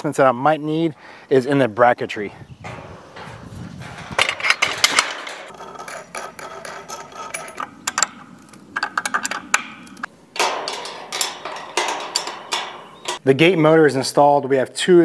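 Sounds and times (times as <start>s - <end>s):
wrenches clanking on metal: 2.6s - 13.2s.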